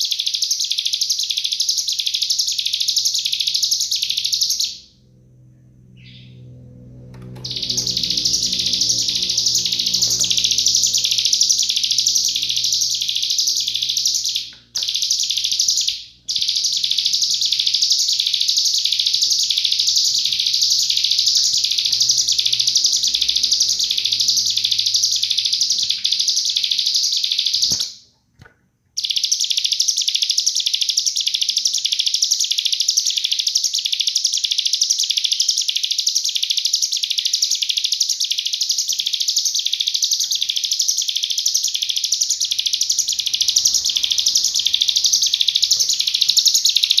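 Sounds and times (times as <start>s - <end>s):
bird singing shrill high notes: 5.8s - 27.8s, 36.7s - 47.0s.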